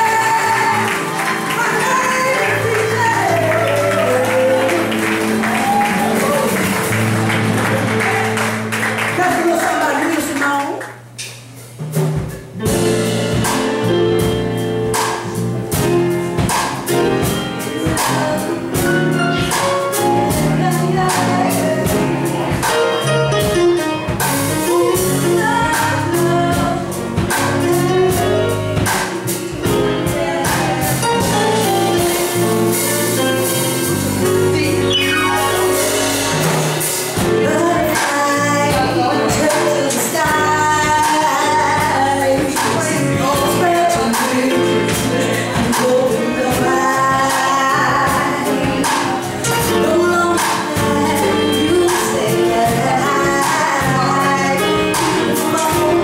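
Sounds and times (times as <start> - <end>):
woman singing: 0.0 - 5.3, 17.2 - 23.1, 24.6 - 33.5, 37.2 - 56.0
drums: 0.0 - 56.0
grand piano: 0.0 - 56.0.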